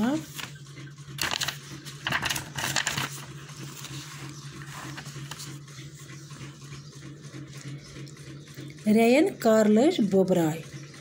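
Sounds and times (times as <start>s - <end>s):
paper rustling: 0.0s - 0.6s, 1.2s - 6.5s.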